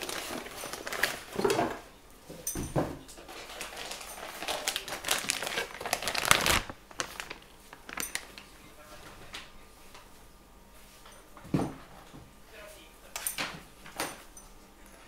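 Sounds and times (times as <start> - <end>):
packaging crinkling and rustling: 0.0 - 1.8, 3.2 - 8.6.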